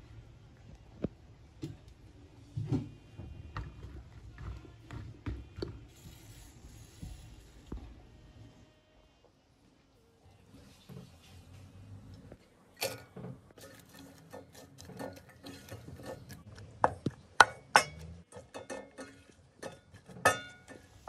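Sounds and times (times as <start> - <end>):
utensil scraping metal pot: 12.8 - 16.8, 17.5 - 21.0.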